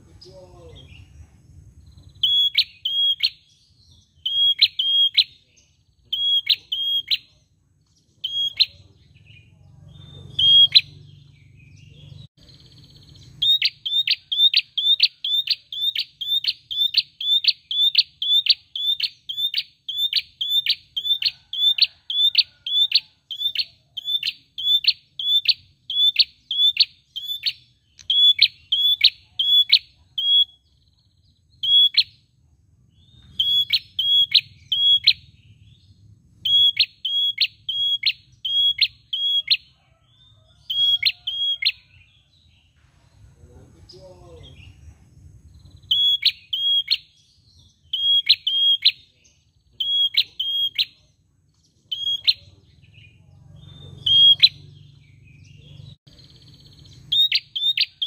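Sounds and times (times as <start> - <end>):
bird calling sharp high notes: 2.2 - 3.5, 4.2 - 5.4, 6.1 - 7.3, 10.2 - 11.1, 33.2 - 35.3, 36.5 - 39.6, 45.9 - 47.2, 53.9 - 54.7.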